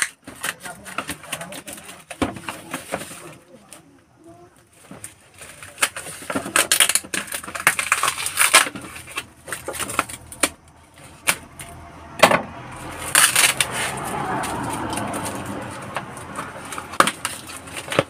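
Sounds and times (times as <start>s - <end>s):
cardboard scraping and rustling: 0.0s - 3.7s, 4.6s - 12.4s, 13.0s - 18.0s
packing tape hissing: 5.3s - 11.4s.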